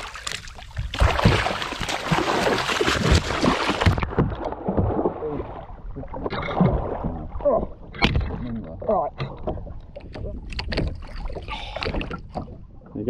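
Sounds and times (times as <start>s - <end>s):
shark thrashing and splashing: 0.0s - 8.5s
water sloshing and slapping: 0.0s - 13.0s.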